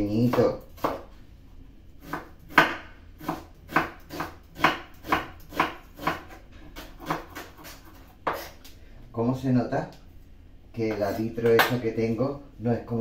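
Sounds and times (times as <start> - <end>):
knife chopping on wooden board: 0.2 - 1.1, 2.0 - 8.5.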